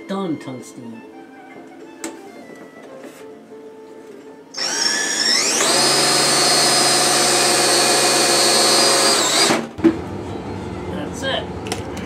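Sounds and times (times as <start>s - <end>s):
electric drill whining: 4.5s - 9.8s.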